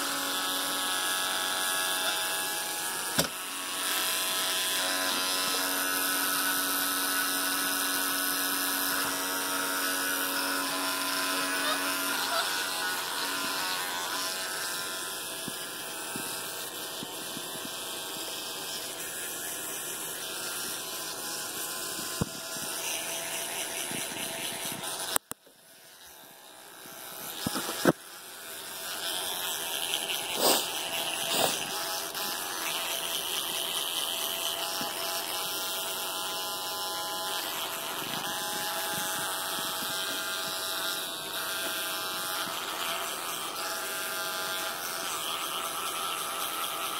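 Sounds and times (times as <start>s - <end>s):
electric toothbrush buzzing: 0.0s - 46.9s.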